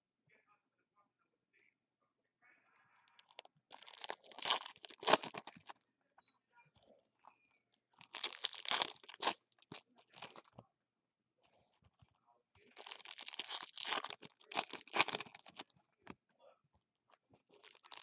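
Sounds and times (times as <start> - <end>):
foil wrappers crinkling: 3.2 - 5.7, 8.0 - 10.5, 12.6 - 15.7, 17.4 - 18.0.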